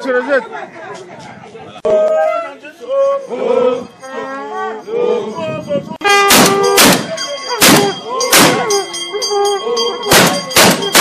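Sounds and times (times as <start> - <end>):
voices singing and calling: 0.2 - 11.0
very loud sharp bangs: 6.2 - 8.8, 10.1 - 11.0.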